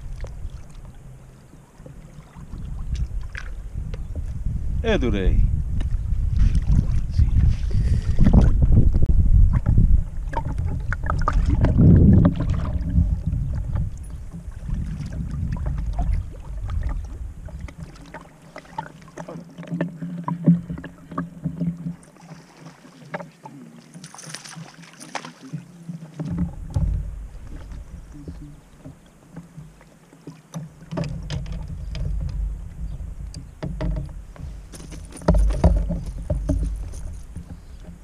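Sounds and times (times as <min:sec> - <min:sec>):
wind rumble on microphone: 0:00.0 - 0:18.0, 0:26.2 - 0:28.6, 0:30.9 - 0:38.0
water lapping against hull: 0:00.0 - 0:38.0
light knocks and clicks: 0:33.2 - 0:38.0.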